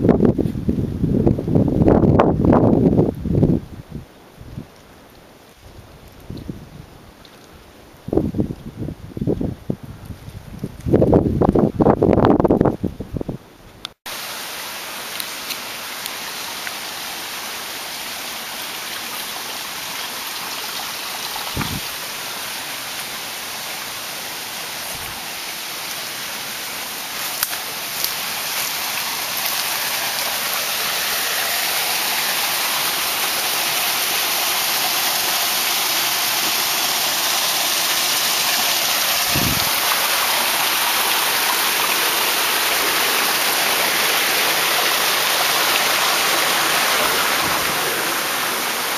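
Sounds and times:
stream rushing over rocks: 14.1s - 48.9s.

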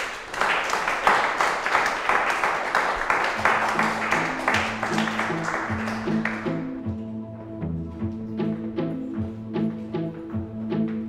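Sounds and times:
hands clapping: 0.0s - 6.9s
soundtrack music with low notes: 3.5s - 11.0s.

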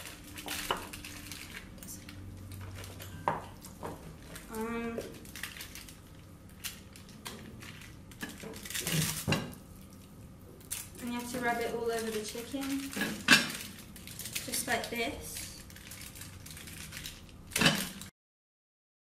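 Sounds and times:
utensils clinking on counter: 10.7s - 16.1s.

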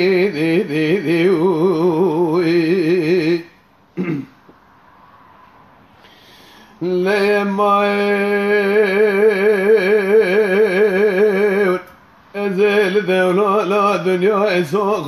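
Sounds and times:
man singing unaccompanied: 0.0s - 3.6s, 6.8s - 15.0s.

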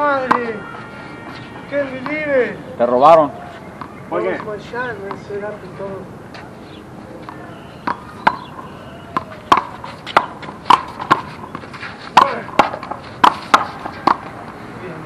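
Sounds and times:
ball smacking off concrete wall: 7.3s - 11.6s, 12.2s - 14.4s
hands striking ball: 7.3s - 11.6s.

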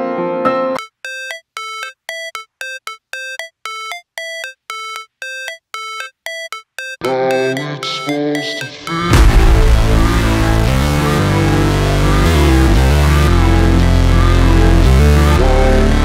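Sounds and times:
rapid electronic beeps: 0.8s - 11.2s
electronic music: 0.8s - 16.0s.

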